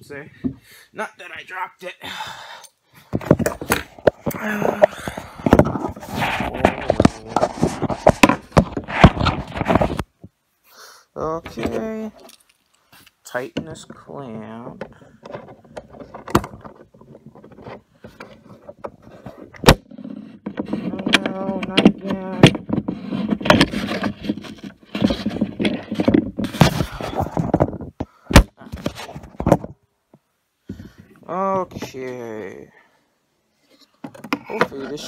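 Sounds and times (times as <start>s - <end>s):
phone handling knocks and rubbing: 14.7s - 29.8s, 33.9s - 35.0s.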